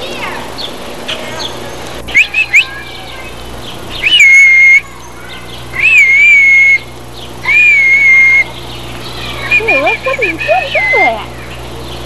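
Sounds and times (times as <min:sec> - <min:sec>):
rising chirp: 0:01.4 - 0:11.1
long whistled notes: 0:04.0 - 0:04.8, 0:05.7 - 0:08.6.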